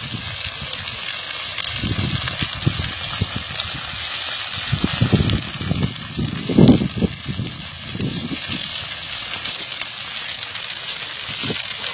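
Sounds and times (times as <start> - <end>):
field fire crackling and rushing: 0.0 - 11.9
wind buffeting microphone: 1.6 - 8.9.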